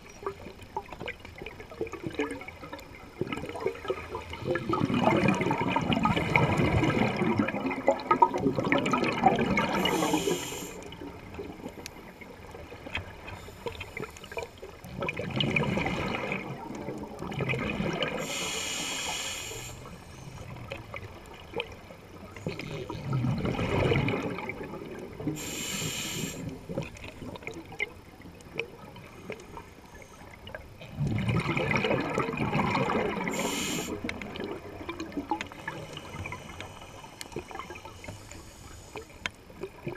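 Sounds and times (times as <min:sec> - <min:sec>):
exhaust bubbling underwater: 0:00.0 - 0:38.0
regulator hiss: 0:09.6 - 0:11.0, 0:18.2 - 0:20.4, 0:25.3 - 0:26.7, 0:33.3 - 0:34.1, 0:35.5 - 0:39.3.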